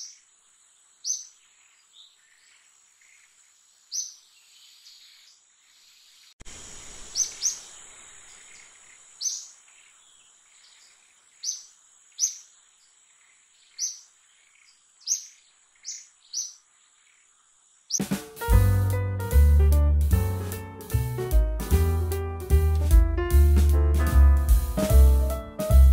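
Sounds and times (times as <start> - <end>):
outdoor hiss: 0.0 - 18.8
music: 18.0 - 25.9.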